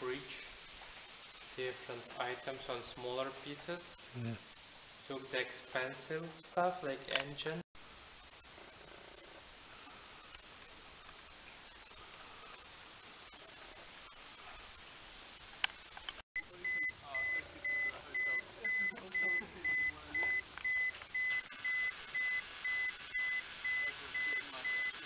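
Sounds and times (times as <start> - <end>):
insect hiss: 0.0 - 25.0
high-pitched alarm beeping: 16.4 - 25.0.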